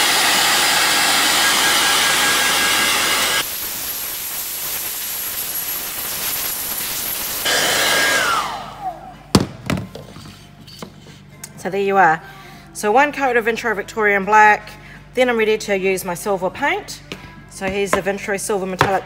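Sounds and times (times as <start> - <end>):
hairdryer blowing: 0.0 - 9.2
hairdryer winding down: 0.0 - 9.2.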